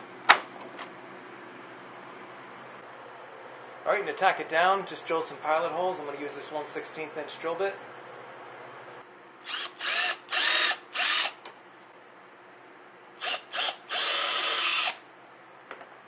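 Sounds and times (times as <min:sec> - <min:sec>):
electric drill bursts: 0:09.4 - 0:11.4, 0:13.2 - 0:15.0.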